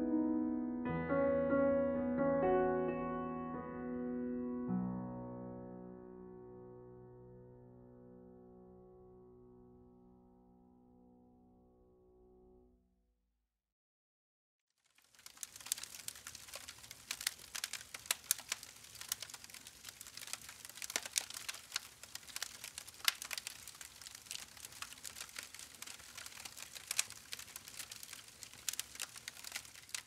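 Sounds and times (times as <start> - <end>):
sparks crackling and popping: 14.8 - 30.0.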